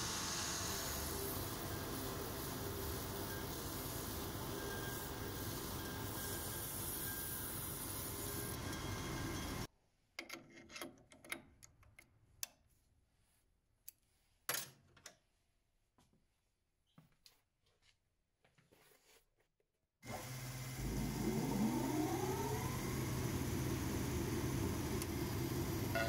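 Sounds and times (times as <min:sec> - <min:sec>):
shoe finishing machine sanding: 0:00.0 - 0:09.6.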